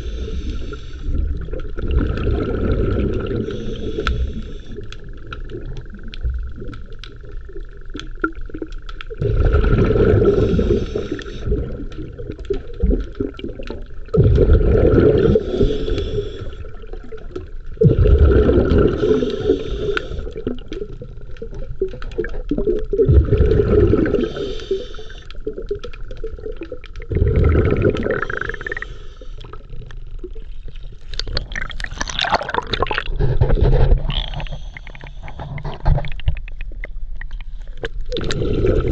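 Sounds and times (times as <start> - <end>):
water sloshing and gurgling: 0.0 - 38.9
surges of water: 17.0 - 20.9, 26.2 - 28.8.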